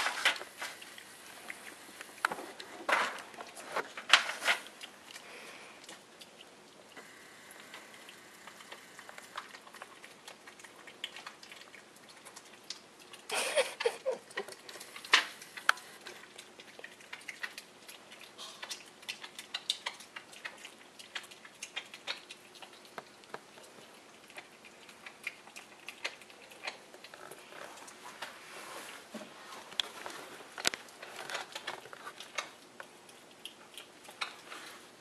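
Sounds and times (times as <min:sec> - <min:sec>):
piglet chewing wetly: 0:00.0 - 0:35.0.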